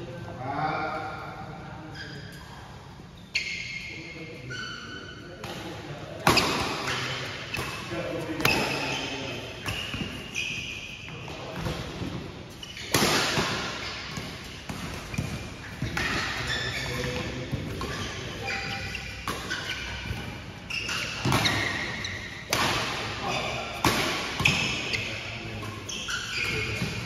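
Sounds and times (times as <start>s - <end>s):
shoes squeaking on court: 1.9s - 27.0s
players' voices: 3.8s - 12.3s, 14.8s - 27.0s
rackets hitting shuttlecock: 5.4s - 9.0s, 12.7s - 27.0s.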